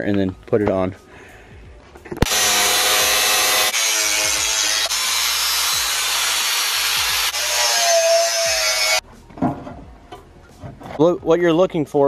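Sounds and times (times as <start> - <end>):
angle grinder cutting sheet metal: 2.2 - 9.0.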